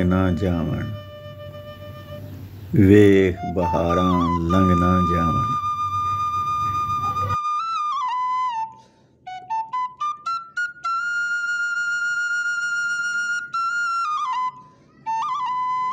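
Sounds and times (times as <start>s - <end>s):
solo flute melody: 0.0s - 15.9s.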